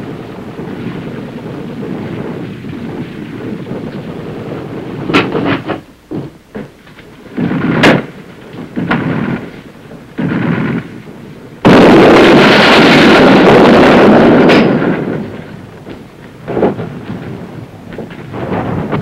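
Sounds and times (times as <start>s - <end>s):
loud explosion roaring: 0.0s - 6.6s, 7.3s - 19.0s
sharp bangs: 7.3s - 19.0s.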